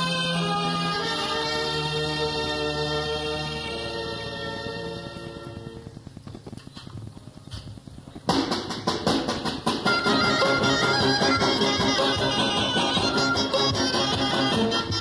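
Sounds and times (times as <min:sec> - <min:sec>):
orchestra playing dance music: 0:08.3 - 0:15.0.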